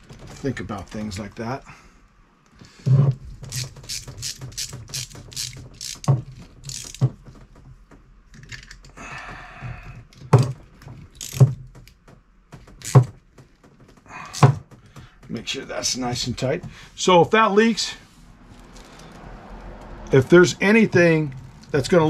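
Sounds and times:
metal fittings clicking: 3.4 - 7.1, 10.9 - 12.0.

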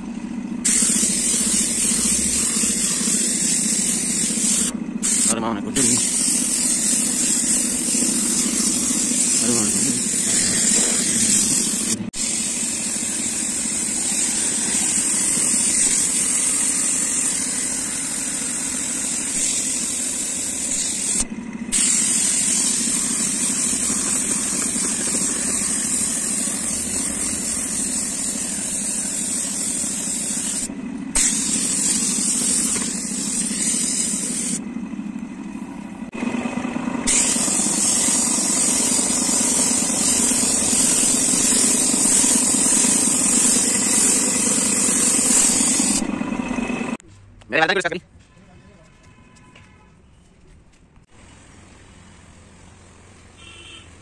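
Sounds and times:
low machine hum: 0.0 - 47.0
paint spray gun hissing: 0.6 - 34.6, 37.0 - 47.0.

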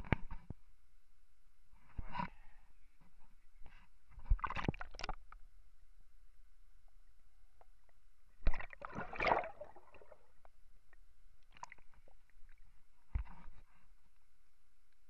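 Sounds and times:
water splashing and gurgling: 4.2 - 5.3, 8.4 - 10.4, 11.5 - 12.7
bubbling gurgle: 8.4 - 10.3.

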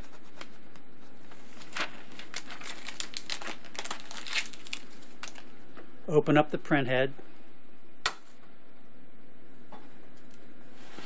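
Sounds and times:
paper labels peeling crinkling: 1.3 - 5.6.

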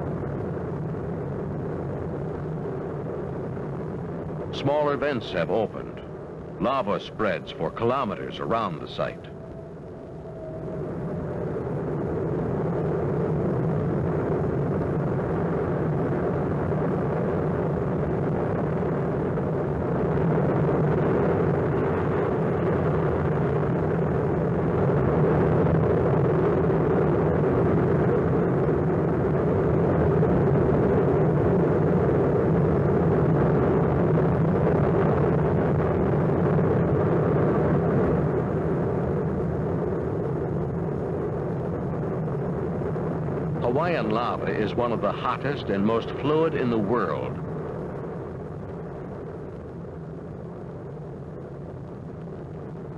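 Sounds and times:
lava fountain roaring: 0.0 - 52.9.

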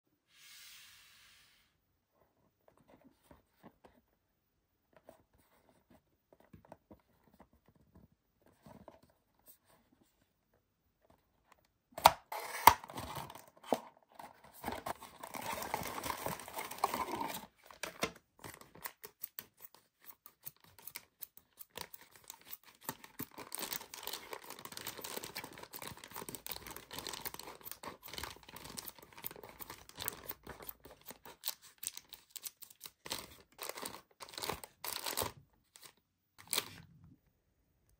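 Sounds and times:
cardboard tearing: 12.2 - 13.8
faint box handling: 12.3 - 18.8.

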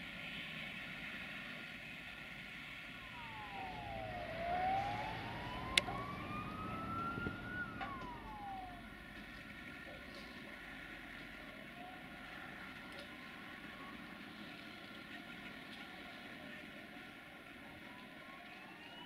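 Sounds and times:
siren wailing: 2.9 - 10.5, 11.1 - 15.1, 17.4 - 19.0.

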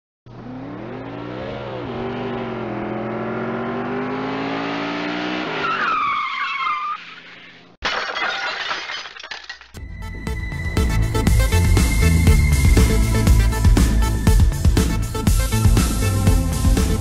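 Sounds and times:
car engine accelerating: 0.3 - 5.7.

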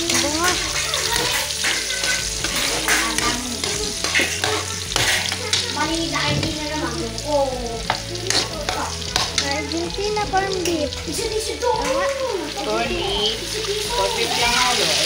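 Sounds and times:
utensil scraping against pan: 0.0 - 6.8, 7.8 - 9.6
food sizzling in a pan: 0.0 - 15.0.

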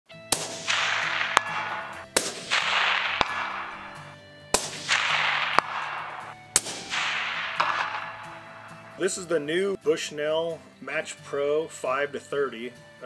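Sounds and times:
faint backing music: 0.1 - 13.0
suppressed rifle shots: 0.3 - 9.0.

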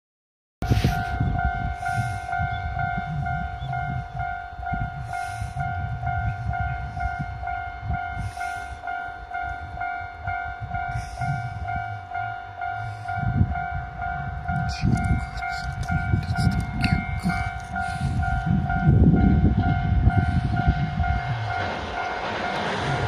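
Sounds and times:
low rumble: 9.2 - 23.0.

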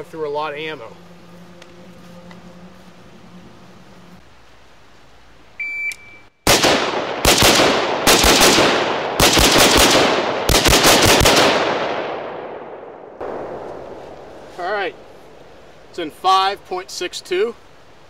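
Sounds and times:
shot timer beep: 5.6 - 6.2
rifle gunshots: 6.4 - 14.0.

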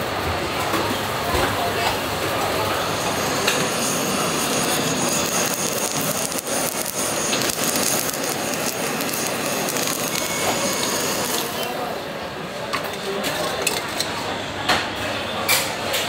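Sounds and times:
blowtorch flame hissing: 2.0 - 12.1.

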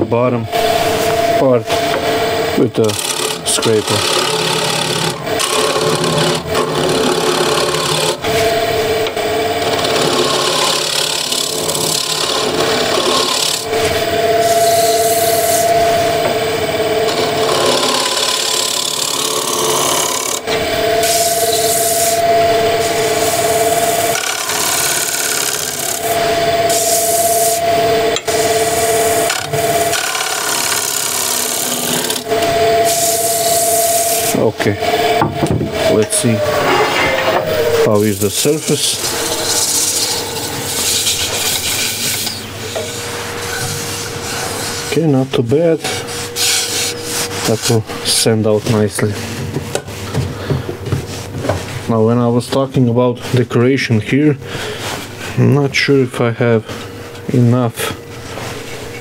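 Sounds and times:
lathe humming tone: 0.0 - 50.8
scraper rasping on spinning wood: 2.8 - 8.5, 9.8 - 15.8, 17.3 - 34.5, 37.5 - 42.4.

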